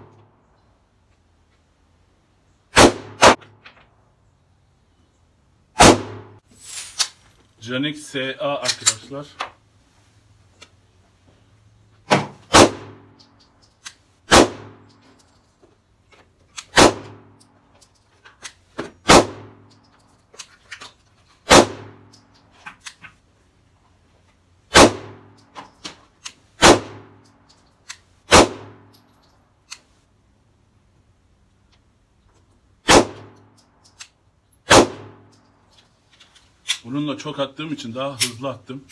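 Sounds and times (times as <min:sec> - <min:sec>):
pistol shots: 0:02.7 - 0:03.6, 0:05.8 - 0:06.4, 0:12.1 - 0:13.1, 0:14.3 - 0:14.8, 0:16.7 - 0:17.3, 0:19.0 - 0:19.6, 0:21.5 - 0:22.1, 0:24.7 - 0:25.3, 0:26.6 - 0:27.2, 0:28.3 - 0:28.8, 0:32.8 - 0:33.4, 0:34.6 - 0:35.3.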